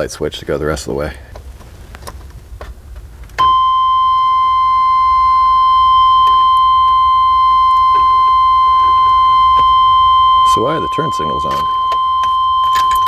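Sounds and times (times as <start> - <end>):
electronic warning buzzer: 3.4 - 13.0.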